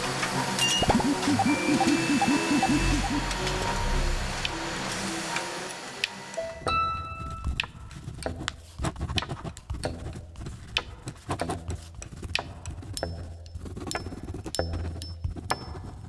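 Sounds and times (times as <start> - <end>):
pen scratching on paper: 7.9 - 13.0, 13.6 - 16.0.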